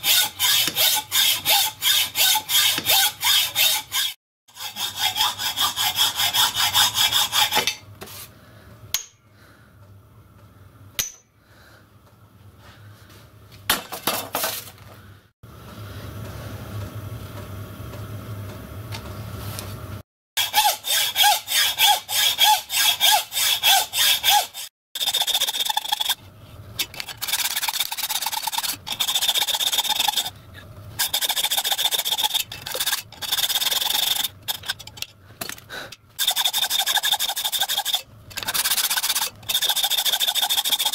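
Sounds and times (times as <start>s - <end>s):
hacksaw cutting cast iron: 0.0s - 7.8s, 20.4s - 26.2s, 26.8s - 30.3s, 31.0s - 35.6s, 36.2s - 40.9s.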